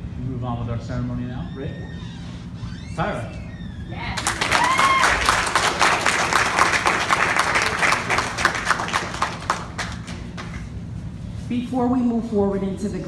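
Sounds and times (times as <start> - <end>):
audience applauding: 4.2 - 10.7.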